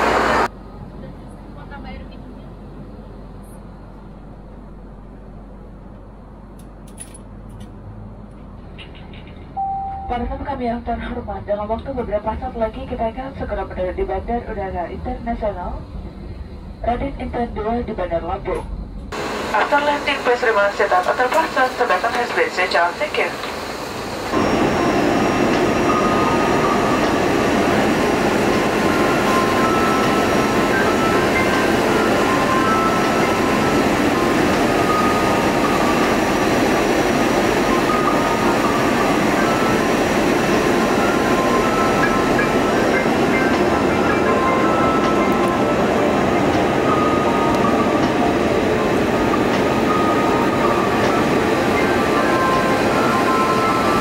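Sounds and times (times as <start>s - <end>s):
airplane cabin hiss and hum: 19.0s - 54.0s.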